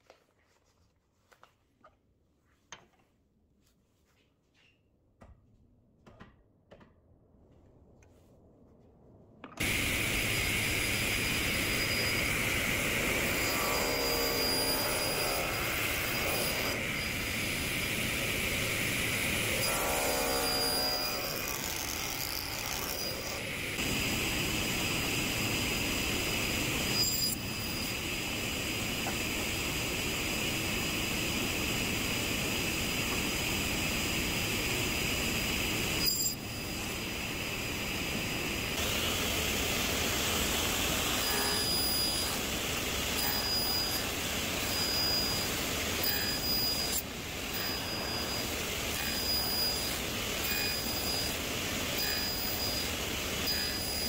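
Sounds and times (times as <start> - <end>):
saw blade cutting wood: 9.6 - 24.0, 38.8 - 54.0
table saw whining: 9.6 - 54.0.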